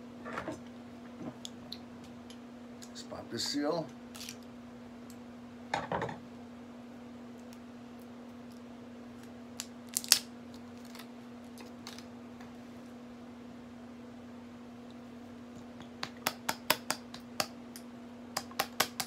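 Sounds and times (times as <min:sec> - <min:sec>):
faint steady hum: 0:00.0 - 0:19.0
plastic crinkling: 0:09.6 - 0:12.1.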